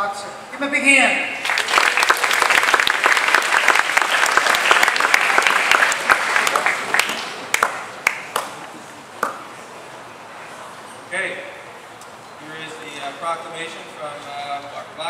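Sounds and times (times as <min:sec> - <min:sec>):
audience applauding: 0:01.4 - 0:09.4.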